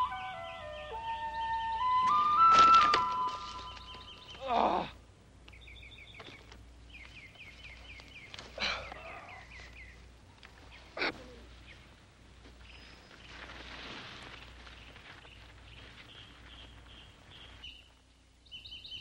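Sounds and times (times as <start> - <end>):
bird chirping: 0.0 - 4.5, 5.5 - 12.0, 14.8 - 19.0
quiet outdoor ambience: 0.0 - 19.0
man groaning: 4.4 - 5.0.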